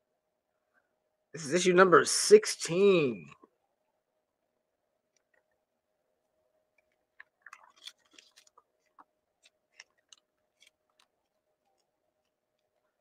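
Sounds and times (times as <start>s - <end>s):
plastic bag crackling: 7.4s - 11.9s.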